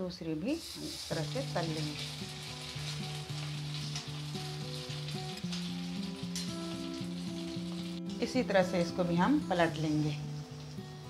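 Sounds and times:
soft background music: 0.0s - 11.0s
food deep-frying in oil: 0.3s - 11.0s.

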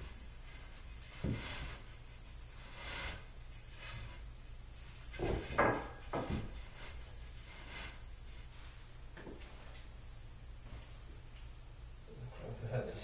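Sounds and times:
furniture parts scraping: 0.0s - 9.8s
furniture parts knocking: 5.1s - 6.6s.

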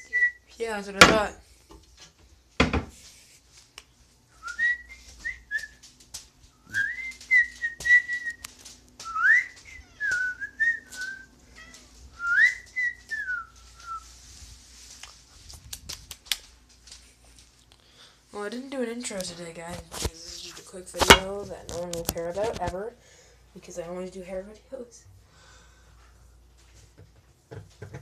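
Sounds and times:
person whistling a tune: 4.4s - 5.8s, 6.6s - 11.3s, 12.2s - 14.0s.

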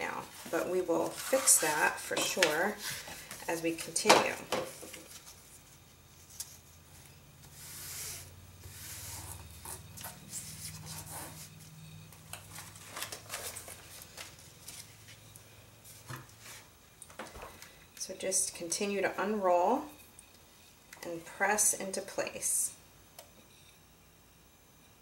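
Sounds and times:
hands rubbing vinyl: 5.0s - 11.7s.

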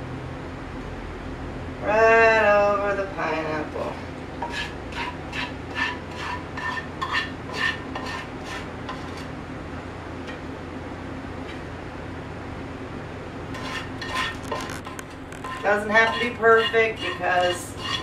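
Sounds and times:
metal spoon clinking against pan: 15.4s - 18.0s.

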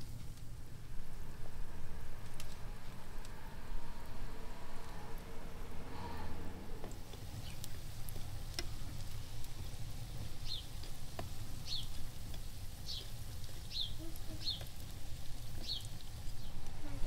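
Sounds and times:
pastries sizzling in oil: 0.0s - 17.0s
bird chirping: 10.4s - 10.8s, 11.6s - 12.0s, 12.8s - 14.7s, 15.6s - 16.6s.

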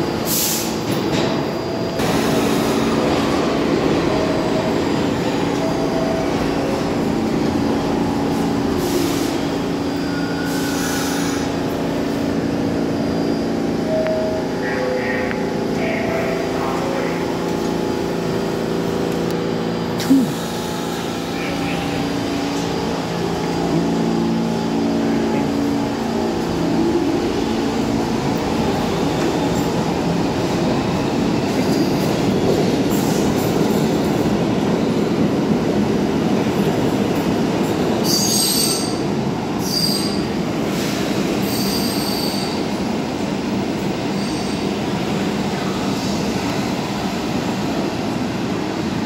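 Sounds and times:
train wheels rumbling on rails: 0.0s - 49.0s
high-pitched wheel squeals: 41.4s - 42.6s.

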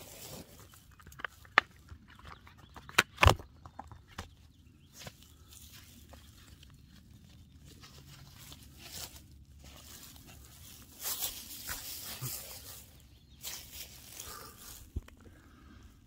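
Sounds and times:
foam pad rustling and scuffing: 7.8s - 14.1s.

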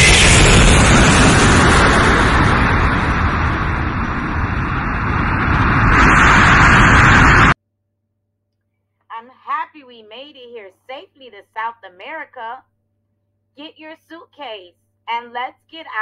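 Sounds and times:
jet airliner engine roar: 0.0s - 7.6s.

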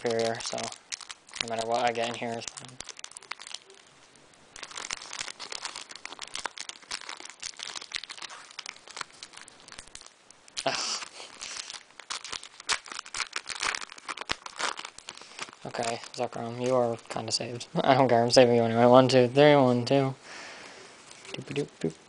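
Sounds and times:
foil wrapper crinkling and tearing: 0.0s - 3.9s, 4.5s - 18.7s, 21.1s - 21.7s.

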